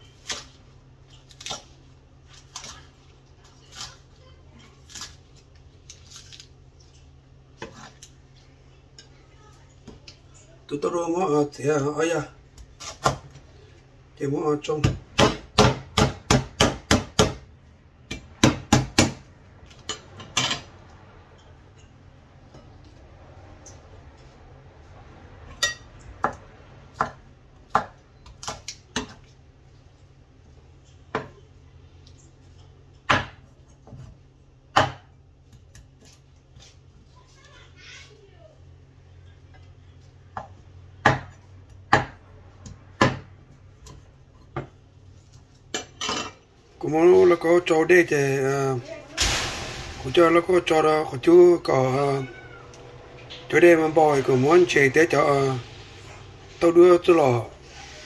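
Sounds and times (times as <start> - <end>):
knife chopping on wooden board: 14.8 - 17.4.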